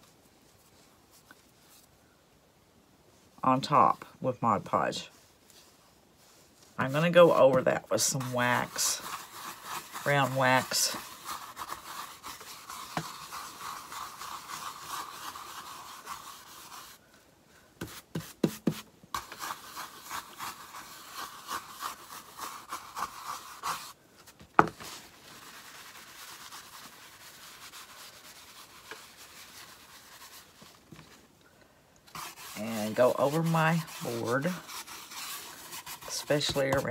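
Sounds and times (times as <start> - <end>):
applicator rubbing on wood: 6.8 - 17.0, 32.1 - 36.9.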